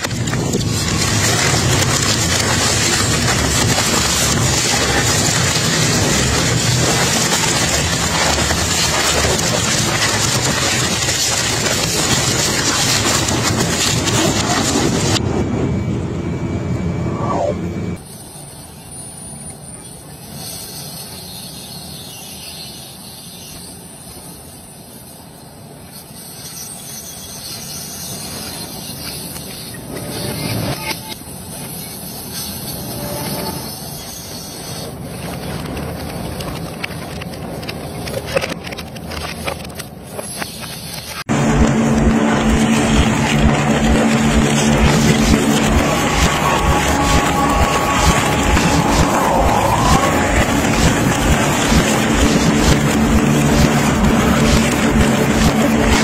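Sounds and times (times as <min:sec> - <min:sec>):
shredder crunching metal: 0:00.0 - 0:15.3, 0:41.3 - 0:56.0
low machine drone: 0:00.0 - 0:18.0, 0:32.6 - 0:34.0, 0:41.2 - 0:56.0.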